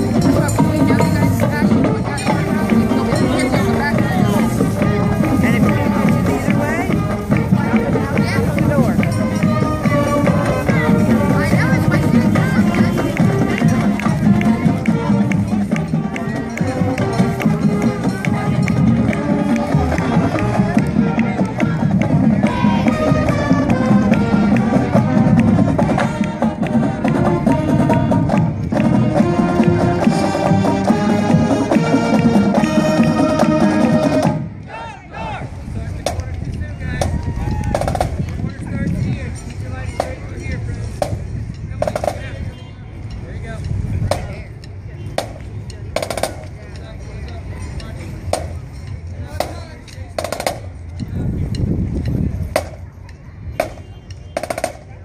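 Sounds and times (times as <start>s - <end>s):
drum beat: 0.0s - 34.4s, 41.0s - 42.4s, 45.2s - 46.6s
woodwinds playing melody: 0.0s - 34.9s
marching band playing: 0.0s - 51.0s, 52.3s - 52.9s, 53.5s - 55.0s
crowd murmur: 0.0s - 55.0s.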